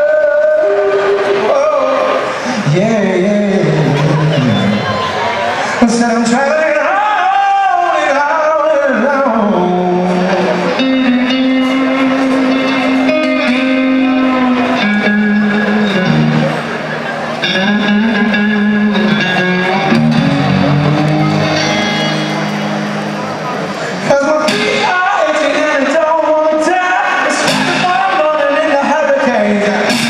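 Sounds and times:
man singing into a microphone: 0:00.0 - 0:05.0, 0:05.7 - 0:16.5, 0:24.0 - 0:30.0
electric guitar: 0:08.2 - 0:30.0.

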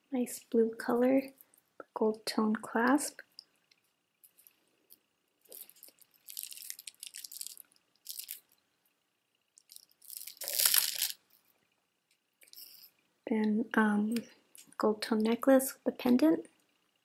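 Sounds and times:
plastic beads clattering: 0:05.5 - 0:08.6, 0:09.6 - 0:11.2.

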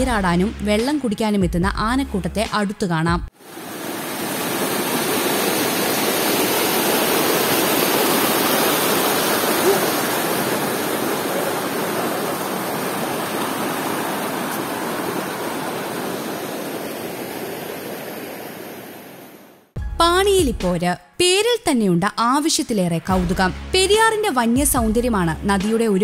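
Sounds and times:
water rushing over rock: 0:03.4 - 0:19.3.

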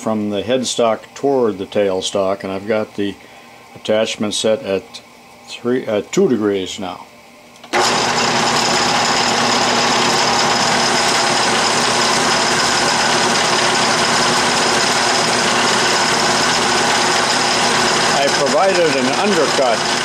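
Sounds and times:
lathe cutting metal whine: 0:07.8 - 0:20.0.

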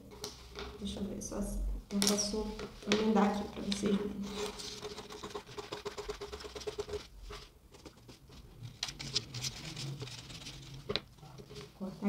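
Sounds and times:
scissors cutting paper: 0:08.8 - 0:11.0.

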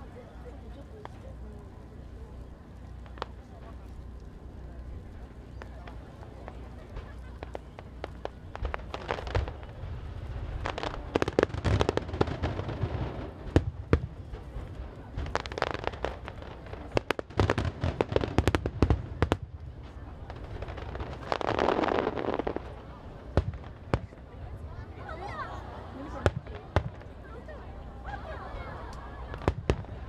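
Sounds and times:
fireworks bangs and crackles: 0:00.0 - 0:27.9, 0:28.8 - 0:30.0
low rumble: 0:00.0 - 0:30.0.

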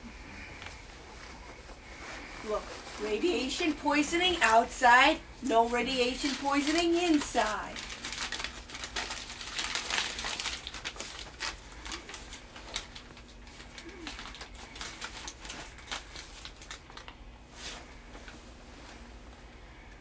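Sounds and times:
plastic packaging crinkling: 0:05.5 - 0:18.4.

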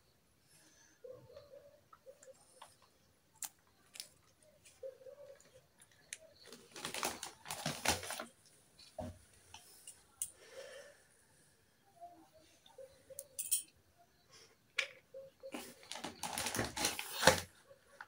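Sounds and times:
plastic toy pieces clattering: 0:15.9 - 0:17.4.

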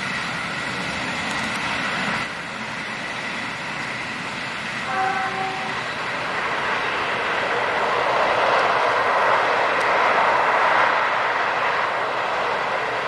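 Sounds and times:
train wheels rumbling on rails: 0:00.0 - 0:13.0
distant train horn blast: 0:04.8 - 0:06.1.

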